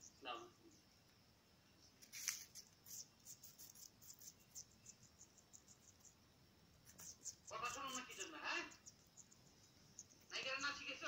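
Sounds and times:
parakeet beak clicks nibbling: 2.0 - 6.2, 6.8 - 10.8.

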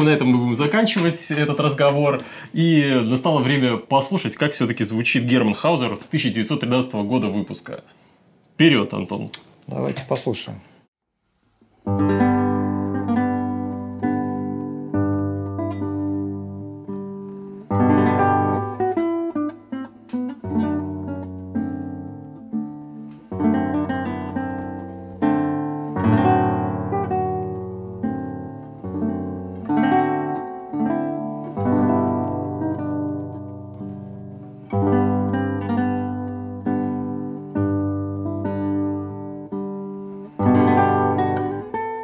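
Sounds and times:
classical guitar fingerpicked: 11.8 - 42.0.

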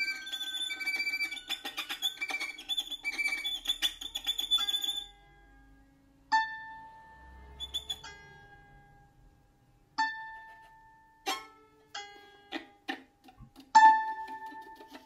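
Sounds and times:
held whistle-like tones: 0.0 - 5.2, 7.5 - 8.2.

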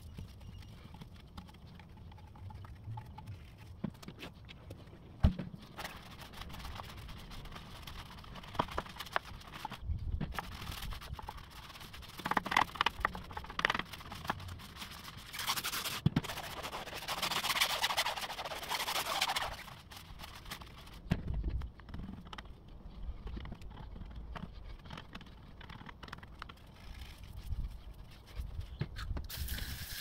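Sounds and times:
brush scrubbing metal wheel: 5.8 - 20.9.

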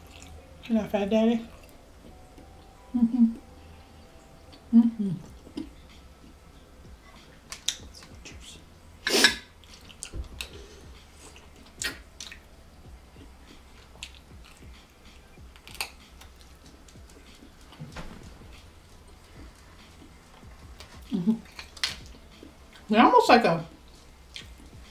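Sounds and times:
wet mouth smacks: 11.2 - 12.5
chewing clicks: 11.3 - 12.5, 13.9 - 17.5.

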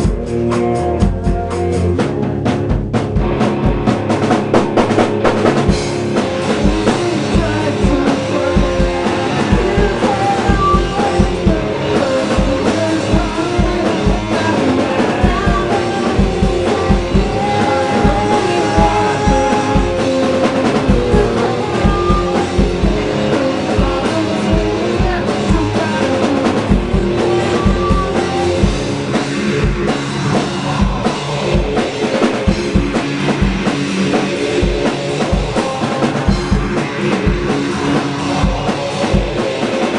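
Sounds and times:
drum kit with kick-drum beat: 0.0 - 39.9
electric guitar through an amp: 0.0 - 39.9
man singing into microphone: 6.5 - 28.9, 35.1 - 39.9.

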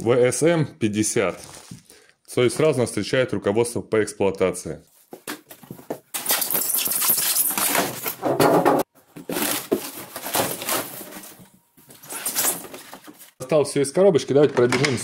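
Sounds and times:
styrofoam squeaking on cardboard: 6.2 - 8.2, 12.0 - 13.4
cardboard flaps rustling: 7.2 - 13.4.

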